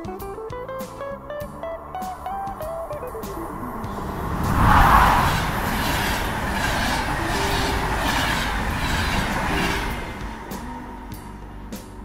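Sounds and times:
passenger train passing: 0:01.6 - 0:12.0
train wheels clicking over rail joints: 0:02.4 - 0:12.0.

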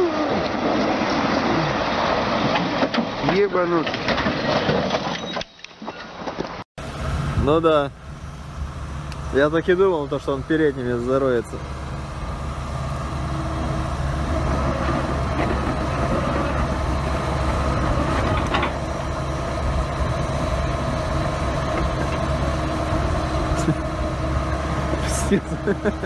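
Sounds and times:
heavy vehicle engine humming: 0:06.8 - 0:26.0.

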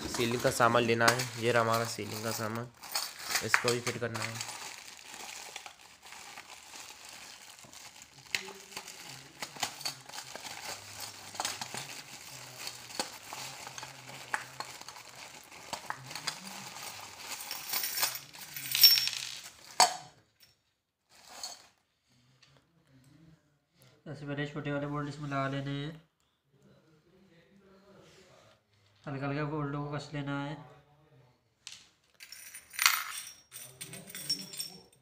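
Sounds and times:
plastic packaging crinkling: 0:00.0 - 0:18.6
metal chain and fittings clinking: 0:00.1 - 0:05.5, 0:15.7 - 0:19.5, 0:32.2 - 0:35.0.

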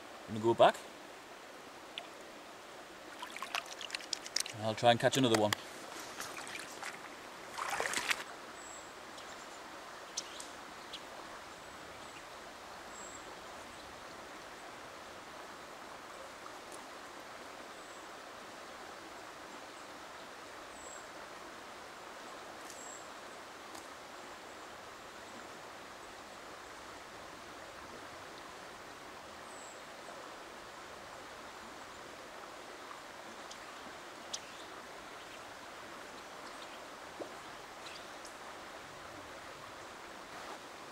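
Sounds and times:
river water rushing: 0:00.0 - 0:17.7.

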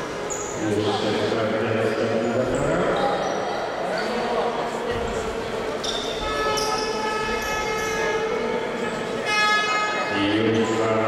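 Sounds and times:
held horn-like tones: 0:06.2 - 0:10.7.

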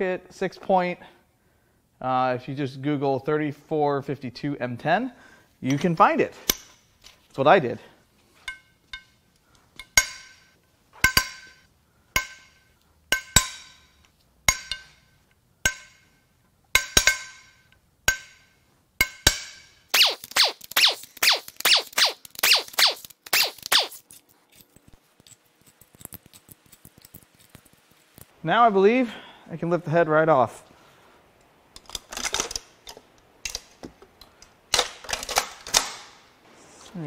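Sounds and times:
bolts cracking loose with metallic pop: 0:09.8 - 0:11.6, 0:12.2 - 0:13.9, 0:16.7 - 0:24.0, 0:31.8 - 0:36.2.

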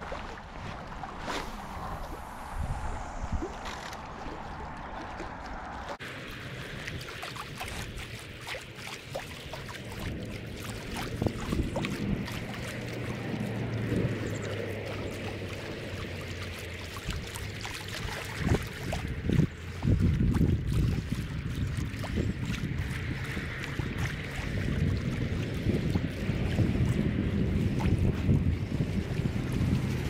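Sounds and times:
small waves lapping on shore: 0:00.0 - 0:30.0
low rumble: 0:00.3 - 0:07.0.

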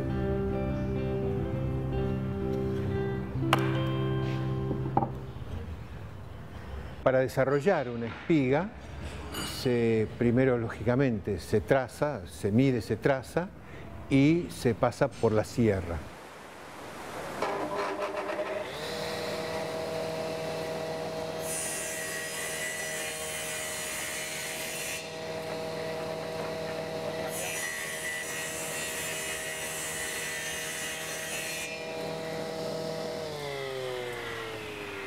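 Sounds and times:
saw blade cutting wood: 0:17.4 - 0:35.0
table saw humming: 0:17.4 - 0:35.0.

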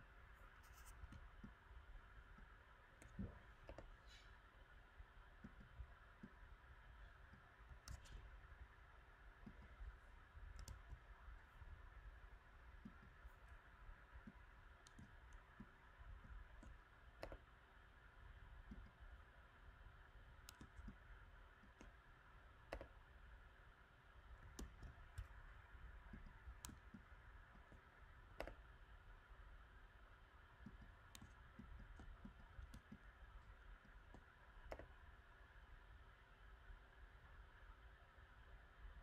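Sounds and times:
low room hum: 0:00.0 - 0:39.0
computer mouse clicks: 0:00.4 - 0:01.6, 0:02.3 - 0:04.3, 0:05.3 - 0:06.6, 0:07.2 - 0:08.6, 0:09.3 - 0:11.8, 0:12.6 - 0:17.9, 0:18.6 - 0:19.1, 0:20.1 - 0:23.2, 0:24.2 - 0:28.9, 0:30.4 - 0:35.1.

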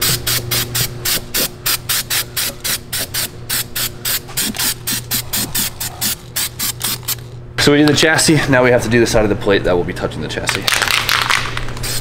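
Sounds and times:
aerosol spray hissing: 0:00.0 - 0:07.0
steady low hum: 0:00.0 - 0:12.0.

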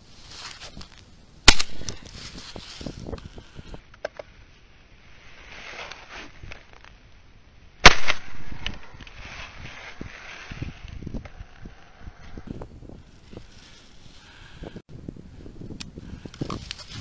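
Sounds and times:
shotgun shot: 0:07.8 - 0:08.6.

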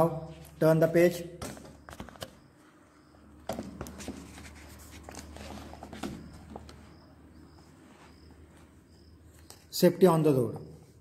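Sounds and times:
book page turning: 0:03.8 - 0:06.1.

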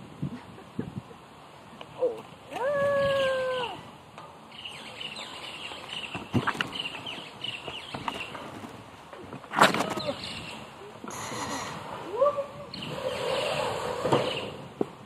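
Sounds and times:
small birds chirping faintly: 0:04.2 - 0:09.2.

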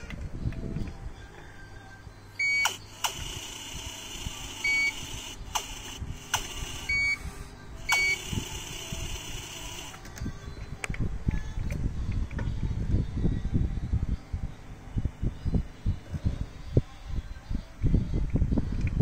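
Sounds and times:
short high-pitched beeps: 0:02.4 - 0:02.8, 0:04.5 - 0:05.2, 0:06.7 - 0:07.2, 0:07.9 - 0:08.4
sharp clicks: 0:05.5 - 0:06.6.

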